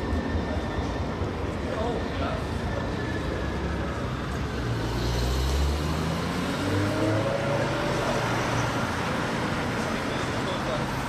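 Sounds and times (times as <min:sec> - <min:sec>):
car engine accelerating: 0:04.7 - 0:09.5.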